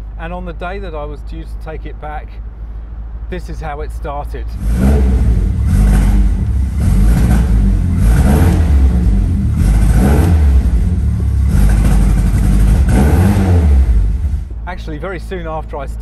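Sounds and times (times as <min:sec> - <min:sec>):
car engine misfiring: 0:04.6 - 0:15.6.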